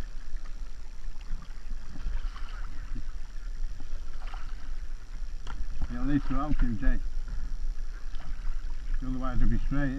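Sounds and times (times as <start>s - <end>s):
steady low rumble: 0.0s - 9.9s
water lapping around kayak: 0.0s - 9.9s
small ticks: 5.4s - 5.9s.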